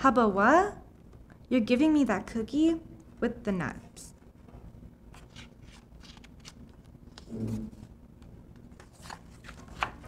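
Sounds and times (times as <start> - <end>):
book page turning: 5.1 - 8.0, 8.6 - 10.0
faint clicks and paper rustles: 5.1 - 10.0.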